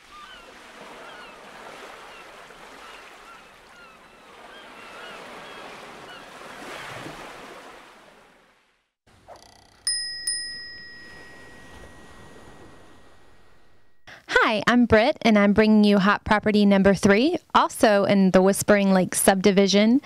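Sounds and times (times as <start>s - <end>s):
birds chirping: 0.1s - 6.4s
bell chime: 9.8s - 14.0s.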